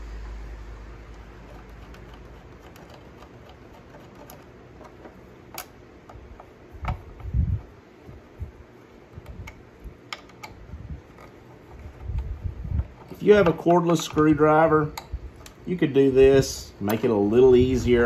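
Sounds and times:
small metal clicks: 9.2s - 15.6s.

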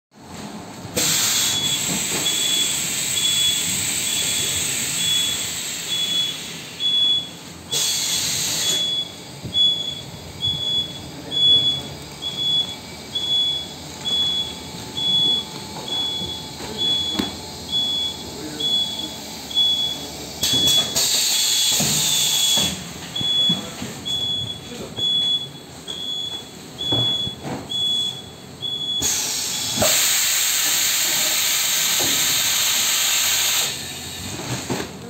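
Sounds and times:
hiss of air: 1.0s - 6.8s, 7.7s - 8.8s, 29.0s - 34.2s.

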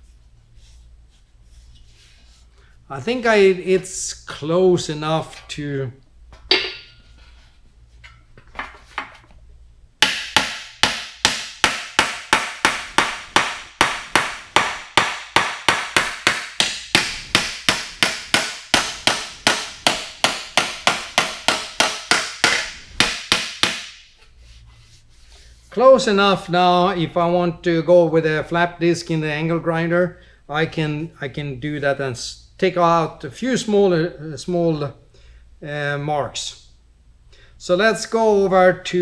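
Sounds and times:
hammer striking sheet steel: 6.5s - 7.0s, 10.0s - 24.1s.

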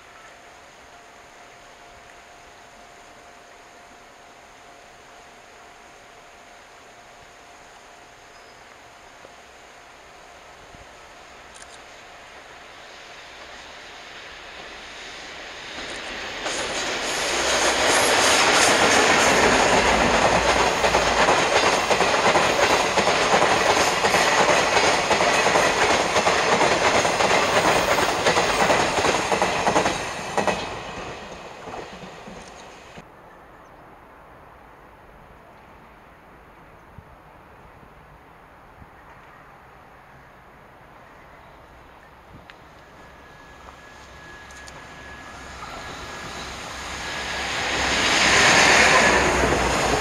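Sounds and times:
train wheels rumbling on rails: 10.8s - 33.0s, 42.4s - 50.0s
clickety-clack over rail joints: 15.7s - 33.0s.

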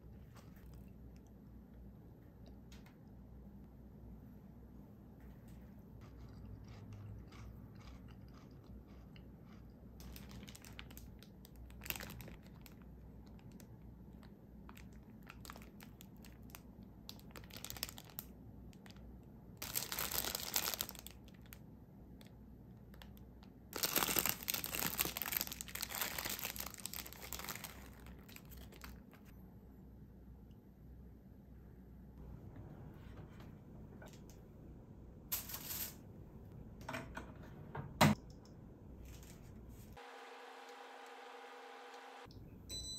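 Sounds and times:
plastic bread wrapper crinkling: 10.0s - 21.6s, 22.2s - 29.3s.

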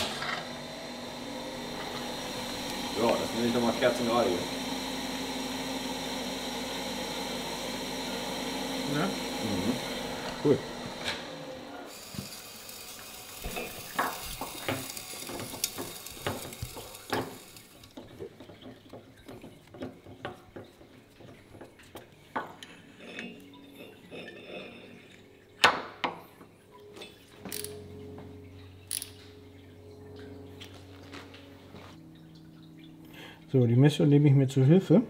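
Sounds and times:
low machine hum: 0.0s - 17.9s, 26.5s - 35.0s
hiss: 11.9s - 17.7s.

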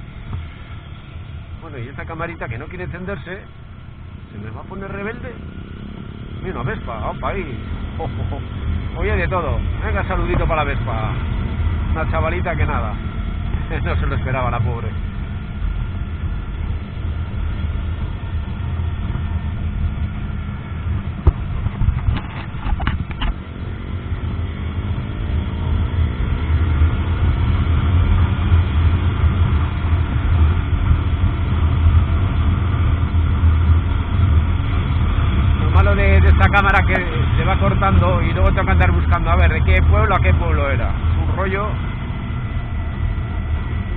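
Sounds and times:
wind and road noise: 0.0s - 43.9s
motorcycle engine pulling: 21.2s - 23.4s.

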